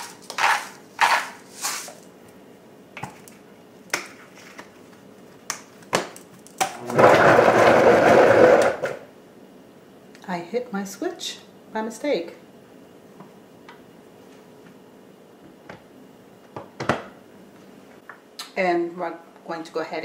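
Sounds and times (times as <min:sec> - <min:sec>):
salt grinder grinding: 0:00.0 - 0:02.0
blender whirring: 0:06.7 - 0:09.0.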